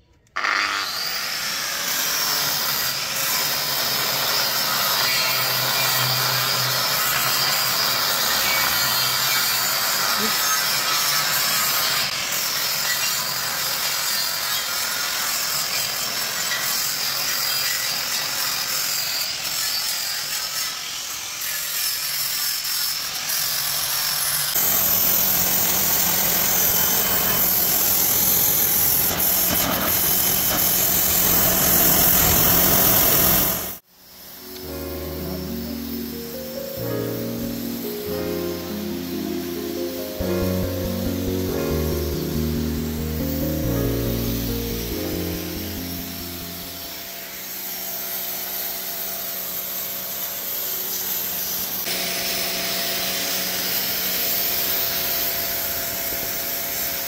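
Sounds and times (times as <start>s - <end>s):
angle grinder whining: 0.2s - 56.9s
pressure washer jet hissing: 3.1s - 18.5s, 24.5s - 48.8s.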